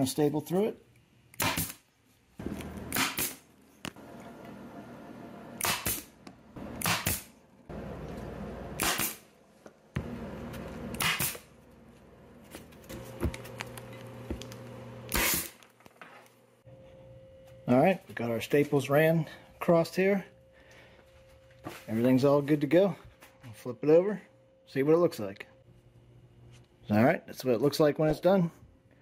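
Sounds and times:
staple gun firing: 5.6 - 6.1, 6.8 - 7.3.

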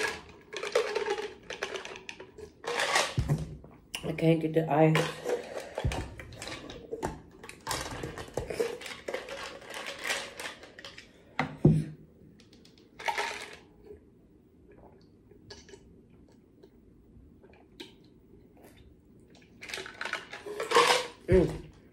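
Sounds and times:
plastic and ice rattling: 0.0 - 3.5, 4.8 - 11.2, 13.0 - 13.6, 19.6 - 21.7.

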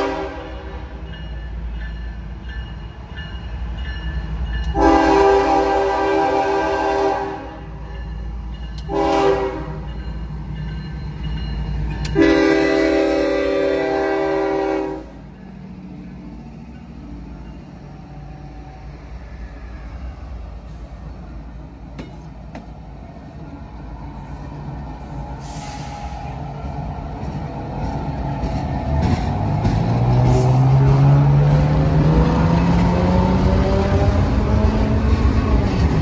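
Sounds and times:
locomotive air horn blasts: 0.0 - 1.0, 4.7 - 7.8, 8.8 - 9.9, 12.1 - 15.2
locomotive engines rumbling: 0.0 - 36.0.

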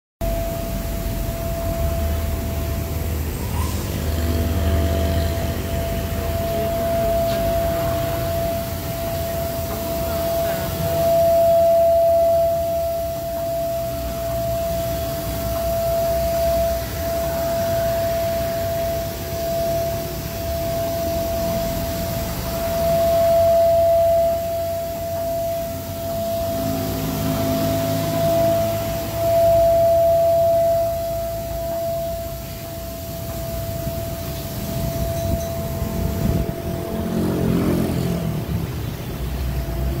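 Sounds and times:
milling machine spindle whine: 0.2 - 37.6
low machine rumble: 0.2 - 40.0
low rumble: 20.4 - 39.1.

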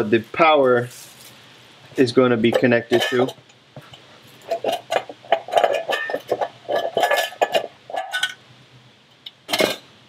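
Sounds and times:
metal box clinking and rattling: 4.4 - 8.4, 9.5 - 9.8.

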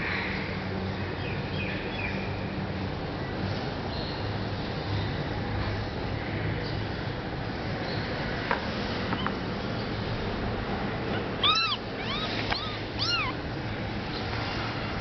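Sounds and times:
newborn kitten mewing: 11.4 - 13.4.

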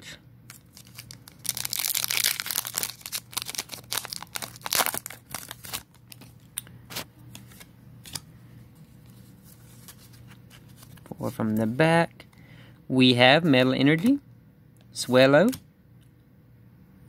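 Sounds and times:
foil wrapper tearing and crinkling: 0.5 - 6.4.

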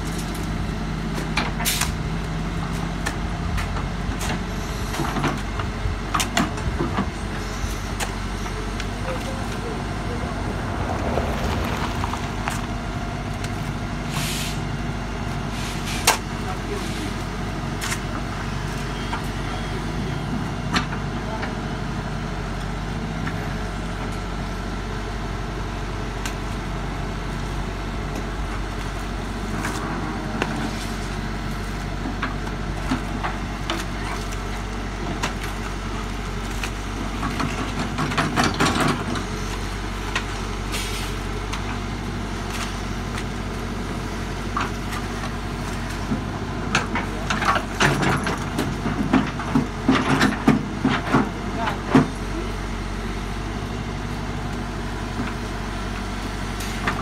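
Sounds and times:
diesel engine running under load: 0.0 - 57.0
scraping and knocking: 10.0 - 13.0.

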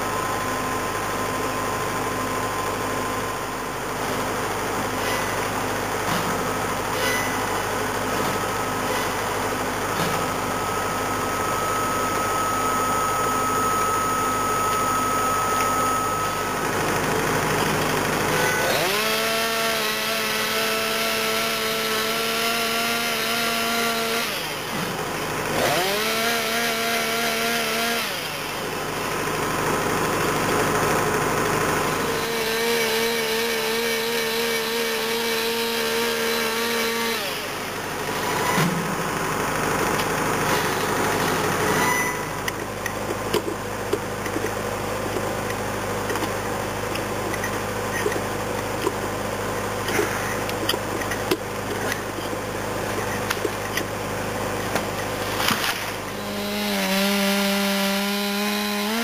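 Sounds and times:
chainsaw cutting trunk: 13.7 - 49.2, 49.8 - 59.0.

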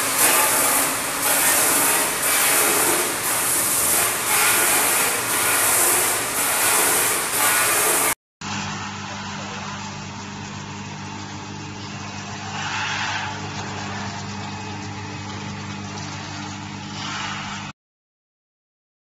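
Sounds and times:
machine hiss: 0.0 - 8.2
electric motor hum: 0.0 - 17.4.

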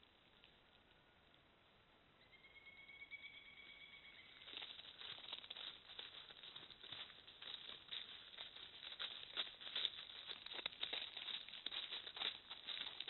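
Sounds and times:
footsteps crunching on dry leaves: 4.4 - 13.0.

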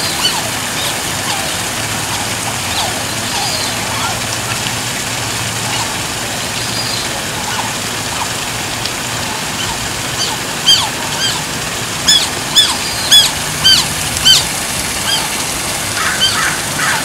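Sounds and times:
otter squeaking chirps: 0.0 - 4.6, 9.3 - 15.3
running water splashing: 0.0 - 17.0.

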